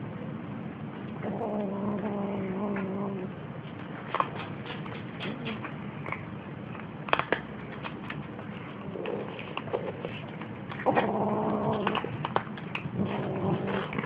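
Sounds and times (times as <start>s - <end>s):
kittens crunching dry kibble: 0.9s - 14.0s
kitten growling: 1.2s - 3.4s, 8.6s - 14.0s.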